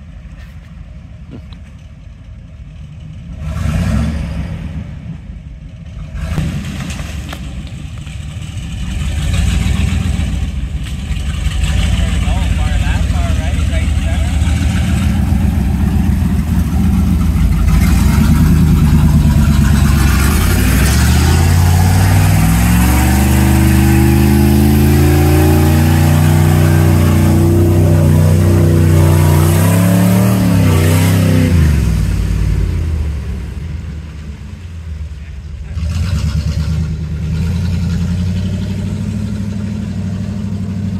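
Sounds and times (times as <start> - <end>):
pickup engine revving hard: 3.4 - 4.9, 11.5 - 33.6, 35.7 - 40.8.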